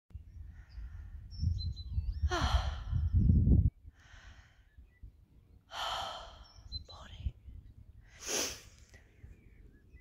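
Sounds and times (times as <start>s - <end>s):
wind on microphone: 0.1s - 5.6s
runner breathing hard: 3.9s - 4.8s.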